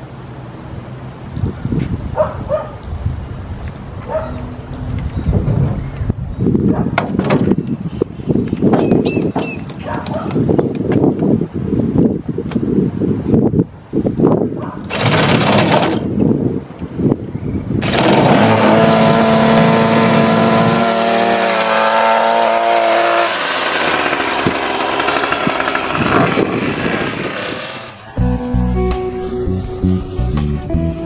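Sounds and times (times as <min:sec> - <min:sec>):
string trimmer engine: 0:14.9 - 0:16.1, 0:17.8 - 0:28.1.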